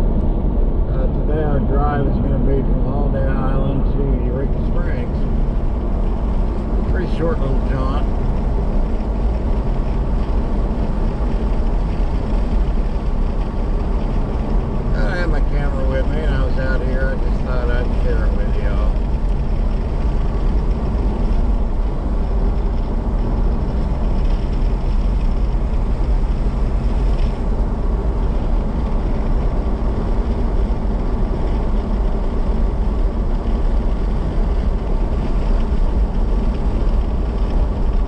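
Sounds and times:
car engine and road noise: 0.0 - 38.0
faint engine hum: 0.0 - 38.0.

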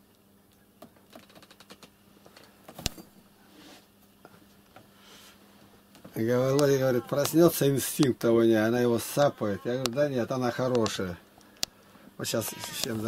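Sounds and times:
faint clicks and scrapes: 1.0 - 2.6.

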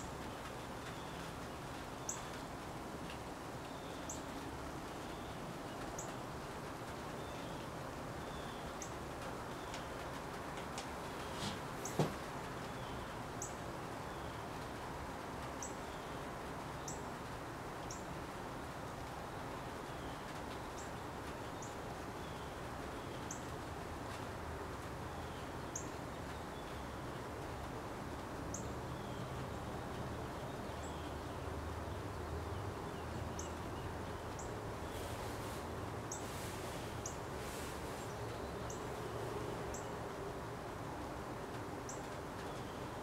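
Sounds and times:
low hum and hiss: 0.0 - 43.0.

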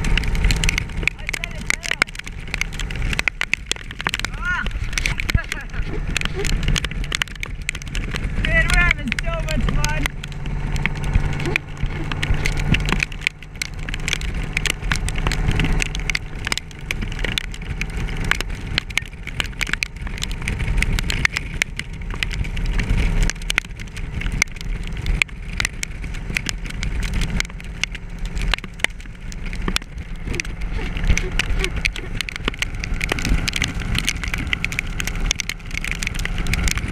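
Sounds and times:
motorcycle engine running: 0.0 - 36.9
rain ticking on helmet camera: 0.0 - 36.9.

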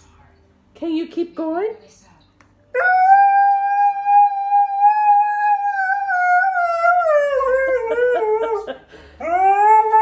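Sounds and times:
husky howling: 2.8 - 10.0.

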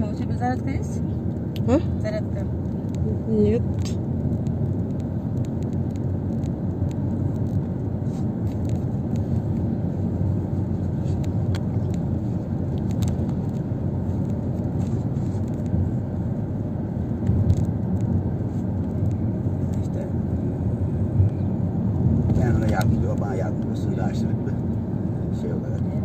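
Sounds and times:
bus engine and road rumble: 0.0 - 26.0.

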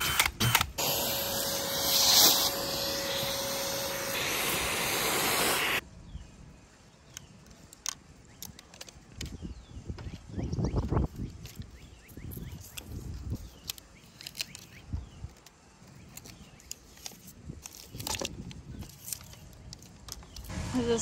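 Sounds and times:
shop vacuum running: 0.8 - 5.8.

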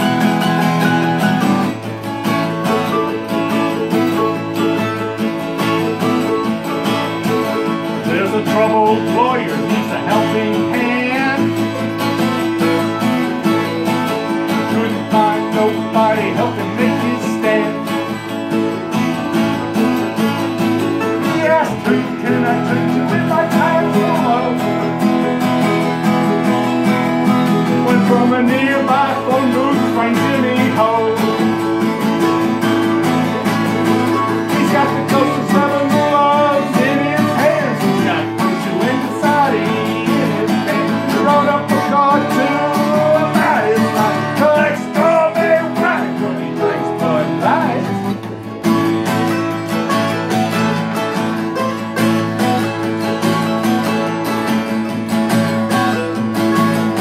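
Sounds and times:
acoustic guitar strumming: 0.0 - 57.0
mandolin playing: 0.0 - 57.0.

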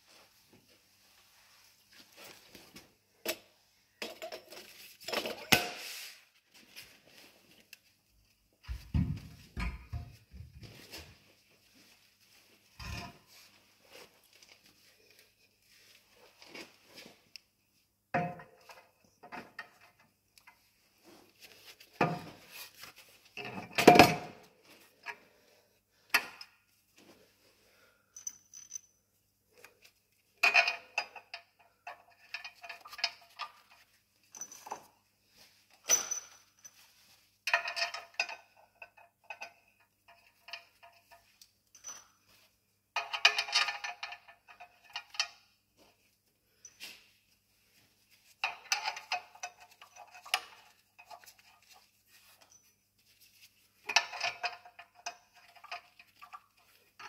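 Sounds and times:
metal clinks and clanks: 28.2 - 29.0, 35.8 - 36.8, 37.5 - 42.2, 43.0 - 45.4, 48.4 - 52.8.

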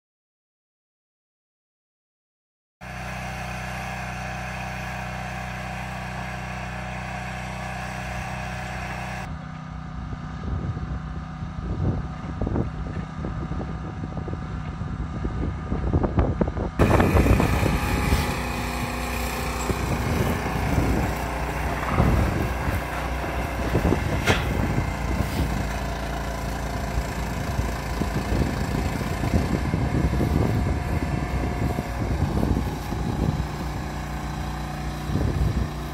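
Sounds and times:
machinery engines running: 2.8 - 35.9
sharp knocks: 24.1 - 24.7.

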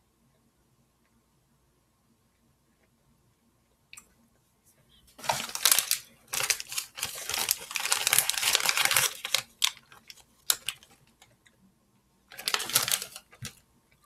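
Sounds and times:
plastic candy bag crinkling: 5.2 - 11.4, 12.3 - 13.6.

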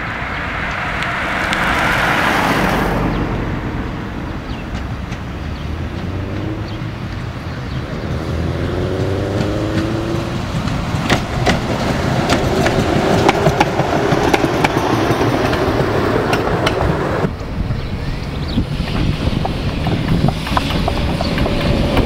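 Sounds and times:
tram passing with whine and rumble: 0.0 - 22.0
wheels clicking over rail joints: 4.4 - 22.0.

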